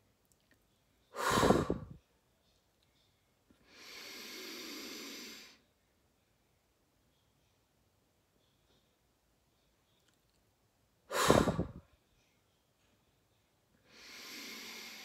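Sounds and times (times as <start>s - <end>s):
woman blowing out breath: 1.2s - 2.0s, 11.1s - 11.8s
woman breathing in through nose: 1.2s - 2.0s, 3.6s - 5.6s, 11.1s - 11.8s, 13.8s - 15.0s.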